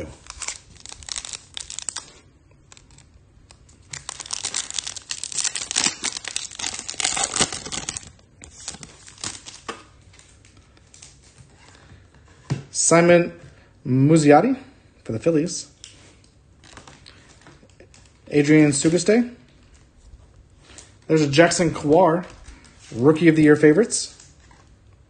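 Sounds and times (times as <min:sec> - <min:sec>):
plastic wrapper crinkling and tearing: 0:00.0 - 0:11.4, 0:15.8 - 0:18.2.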